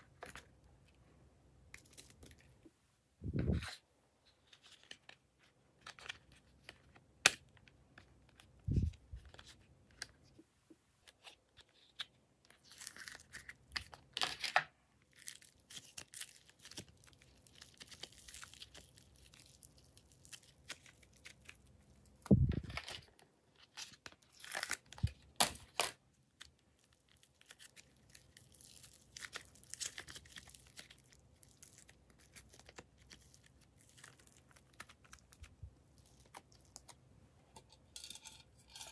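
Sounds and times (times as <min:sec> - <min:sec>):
slime tearing and crackling: 0:12.6 - 0:14.0, 0:15.1 - 0:22.3, 0:24.2 - 0:37.0.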